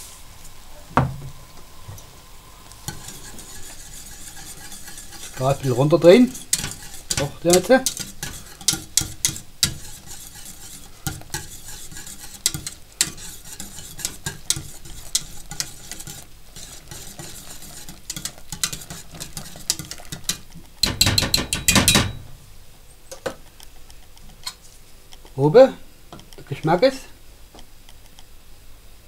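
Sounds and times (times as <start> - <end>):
whisk scraping metal pot: 2.8 - 22.2.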